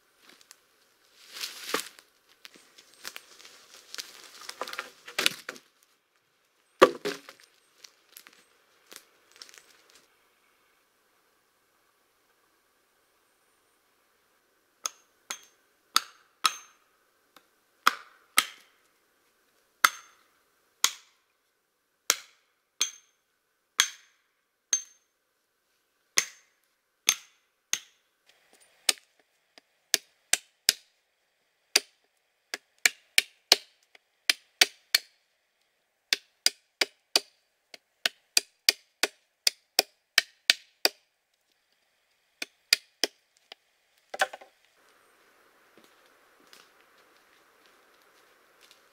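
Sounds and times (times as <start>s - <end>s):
hatchet chopping wood: 6.8s - 7.4s, 14.8s - 16.8s, 17.4s - 18.8s, 19.8s - 20.2s, 20.8s - 21.2s, 22.1s - 23.1s, 23.8s - 25.0s, 26.2s - 28.0s, 28.9s - 30.9s, 31.7s - 35.2s, 36.1s - 41.1s, 42.4s - 43.2s, 44.1s - 44.5s.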